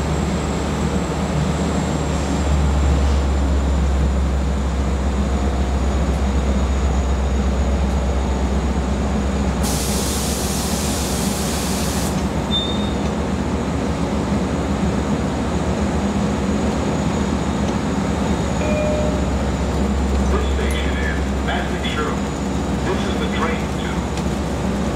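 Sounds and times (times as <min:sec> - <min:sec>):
diesel train rumbling: 0:00.0 - 0:24.9
hiss: 0:09.6 - 0:12.2.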